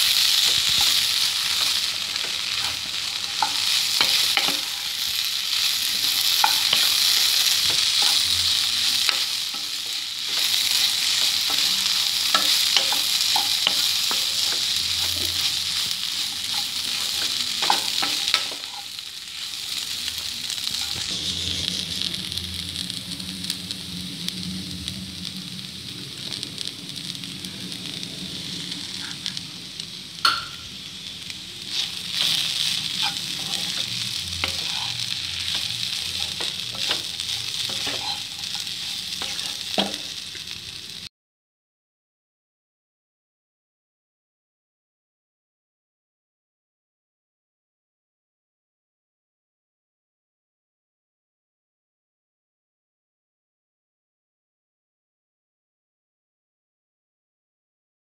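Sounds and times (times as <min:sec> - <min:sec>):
okra sizzling in a pan: 0:00.0 - 0:41.1
wooden spatula scraping and tapping: 0:10.3 - 0:18.9, 0:31.7 - 0:40.2.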